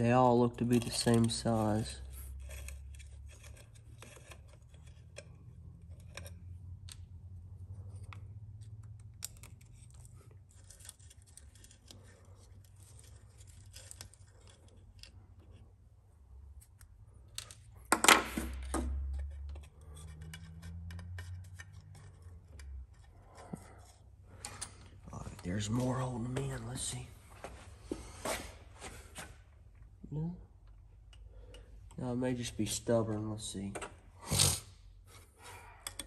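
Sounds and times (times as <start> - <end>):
screwdriver clicking and scraping: 0.6 - 7.1, 18.5 - 24.9.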